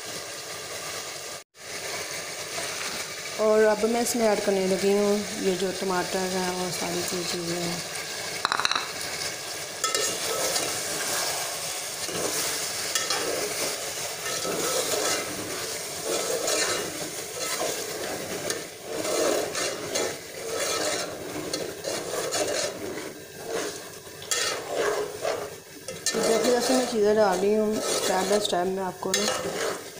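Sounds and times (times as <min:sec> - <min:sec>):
food sizzling: 0:00.0 - 0:29.9
metal spoon scraping pot: 0:09.8 - 0:10.8, 0:12.0 - 0:29.9.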